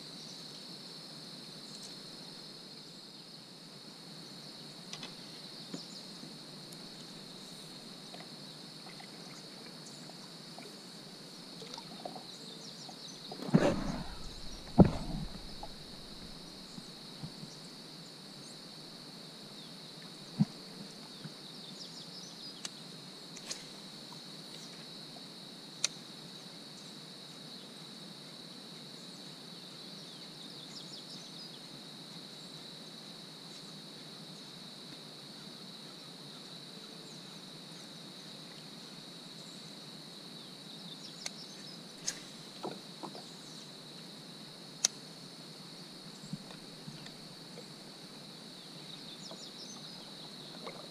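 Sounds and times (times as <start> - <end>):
insect chorus: 0.0 - 50.9
sharp knocks: 13.4 - 16.4.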